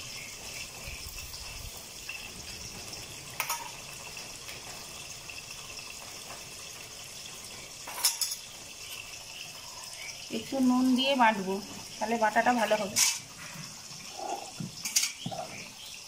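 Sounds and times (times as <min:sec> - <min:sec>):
fish sizzling in oil: 0:00.0 - 0:16.0
steel bowl clattering on stone: 0:03.4 - 0:04.6, 0:07.8 - 0:09.1, 0:12.7 - 0:13.5, 0:14.1 - 0:15.6.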